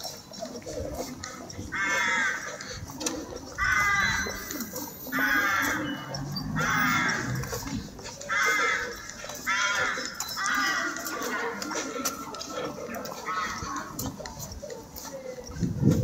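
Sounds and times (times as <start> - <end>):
street background noise: 0.0 - 16.0
crow cawing: 5.2 - 7.5, 8.3 - 10.1.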